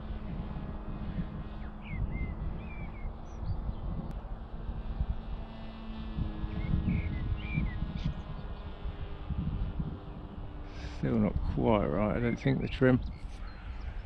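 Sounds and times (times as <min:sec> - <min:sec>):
model aircraft motor droning: 0:00.0 - 0:14.0
wind buffeting microphone: 0:00.0 - 0:14.0
bird chirps: 0:01.6 - 0:04.0, 0:06.5 - 0:08.7, 0:13.0 - 0:14.0.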